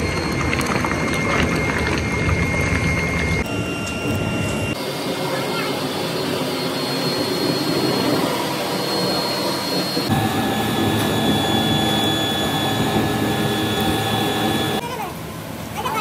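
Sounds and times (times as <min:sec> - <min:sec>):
furnace air blast roar: 0:00.0 - 0:14.8
fan whine: 0:00.0 - 0:15.7.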